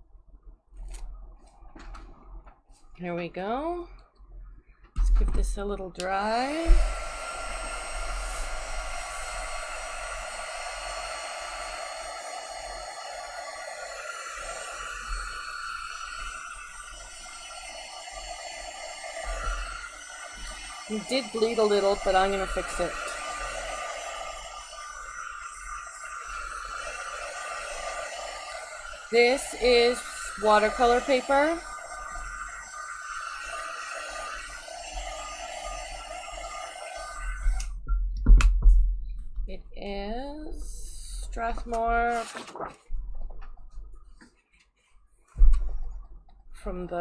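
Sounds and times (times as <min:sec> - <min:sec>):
heat tool blowing air: 0:05.4 - 0:37.8, 0:40.2 - 0:42.2.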